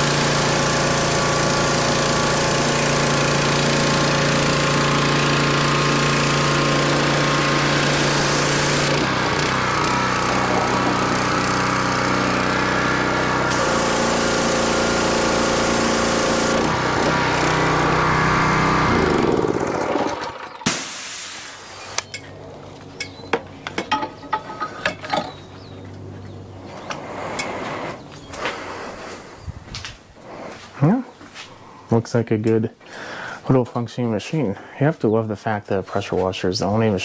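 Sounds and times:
high-pressure spray hissing: 0:00.0 - 0:04.7, 0:05.8 - 0:09.0, 0:13.5 - 0:16.7, 0:20.7 - 0:22.0
pressure washer engine running: 0:00.0 - 0:24.0.

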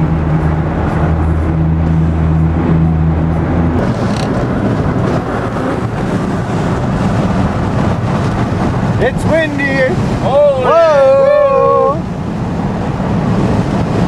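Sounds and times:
low engine drone: 0:00.0 - 0:09.2
road and wind rumble: 0:00.0 - 0:14.0.

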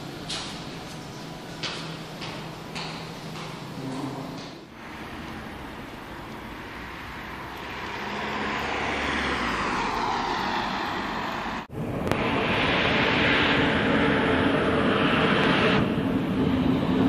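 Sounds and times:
road traffic: 0:00.0 - 0:17.0
train station noise: 0:00.0 - 0:17.0
vehicle passing by: 0:04.7 - 0:17.0.

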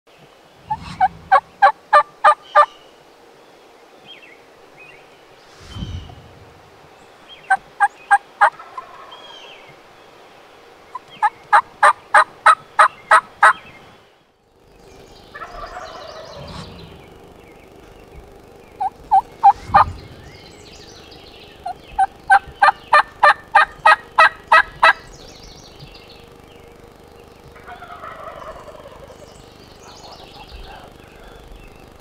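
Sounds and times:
turkey yelping: 0:00.8 - 0:02.7, 0:15.3 - 0:16.6, 0:18.8 - 0:19.6, 0:21.6 - 0:25.0, 0:27.6 - 0:29.2.

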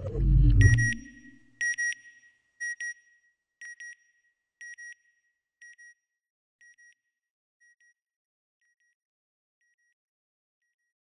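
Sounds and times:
electronic double beeps: 0:00.0 - 0:01.5.

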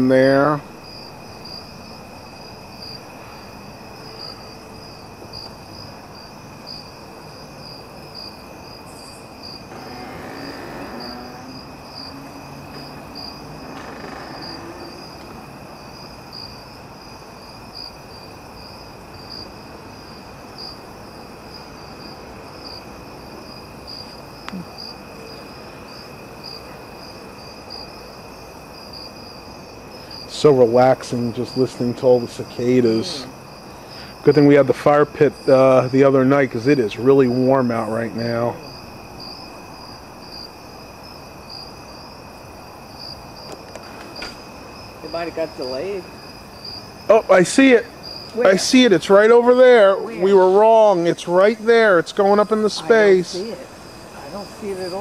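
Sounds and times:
insects shrill pulsing: 0:00.0 - 0:16.6, 0:28.9 - 0:34.6
low insect drone: 0:00.0 - 0:55.0.

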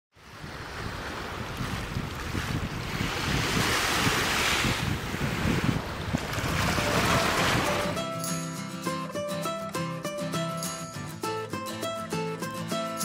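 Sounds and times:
waves splashing on choppy water: 0:00.2 - 0:08.0
wind rumbling on microphone: 0:00.2 - 0:08.0.

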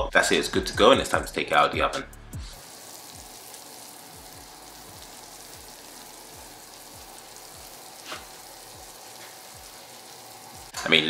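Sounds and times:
cheese sizzling in baking dish: 0:02.6 - 0:10.8.

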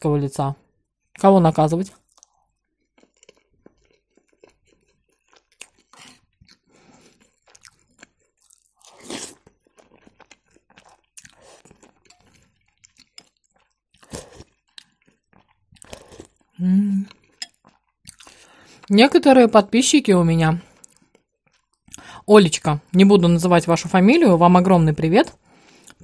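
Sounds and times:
person chewing food: 0:01.9 - 0:18.9, 0:20.6 - 0:22.1, 0:25.3 - 0:26.0.

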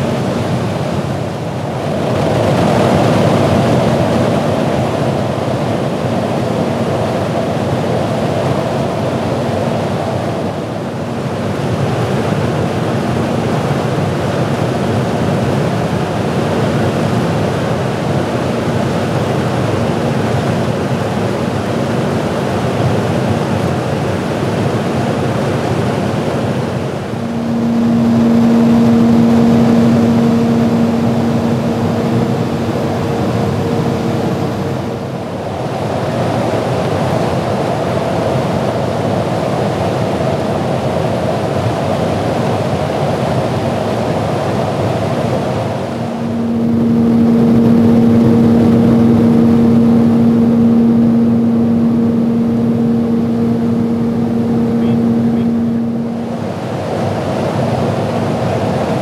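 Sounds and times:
aircraft wind and engine noise: 0:00.0 - 0:59.0
low steady hum: 0:25.1 - 0:35.5, 0:45.4 - 0:59.0.

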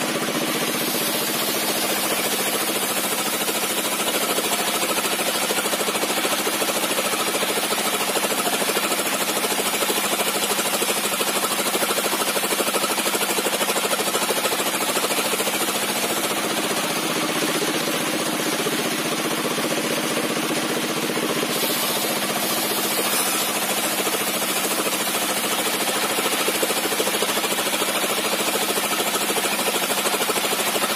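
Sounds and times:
circular saw ripping wood: 0:00.4 - 0:10.7, 0:21.4 - 0:26.2.

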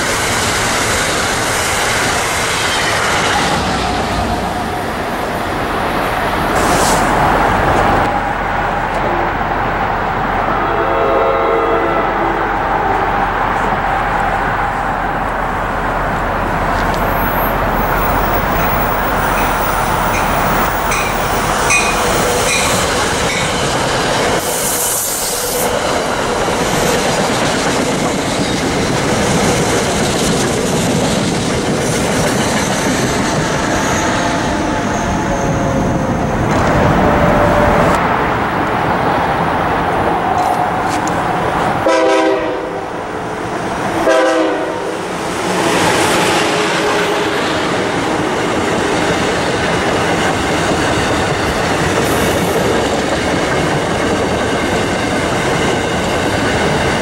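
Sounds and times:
train horn blasts: 0:10.5 - 0:13.0, 0:41.8 - 0:43.0, 0:44.0 - 0:45.0
train wheels clattering over rails: 0:16.7 - 0:34.8, 0:45.1 - 0:57.0.

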